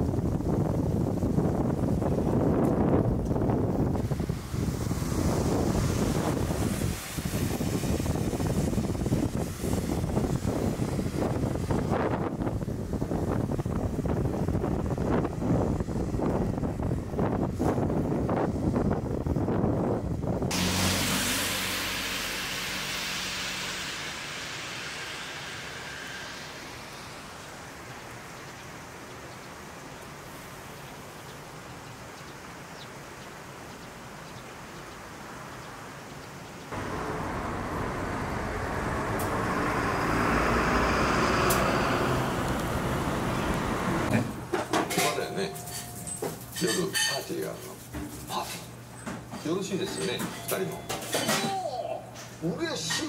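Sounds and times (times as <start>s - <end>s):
outdoor hiss: 0.0s - 17.9s, 20.3s - 50.8s
wind buffeting microphone: 0.0s - 20.6s, 36.7s - 44.6s
bus engine rumble: 0.0s - 28.1s, 36.8s - 47.0s
car engine hum: 20.5s - 28.3s, 36.7s - 44.9s.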